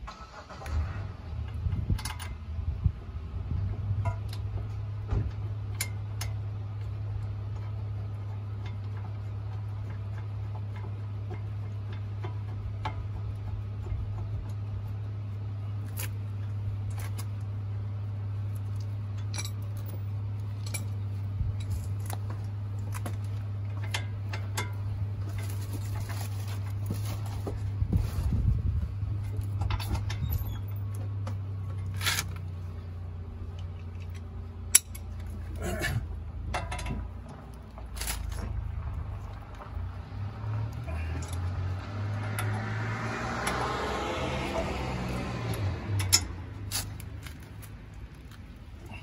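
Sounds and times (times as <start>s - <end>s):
steady low hum: 0.8s - 43.4s
hand tools clinking on metal: 18.6s - 27.2s, 33.6s - 38.6s, 40.7s - 42.6s, 44.4s - 49.0s.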